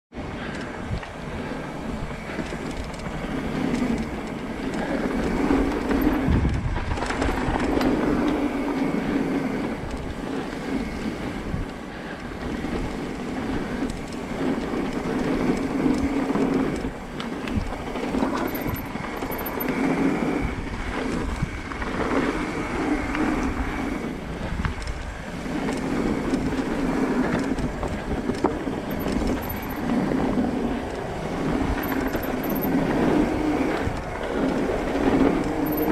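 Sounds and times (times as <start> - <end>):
bicycle tyres rumbling on gravel: 0.2 - 35.9
bike rattling: 0.2 - 35.9.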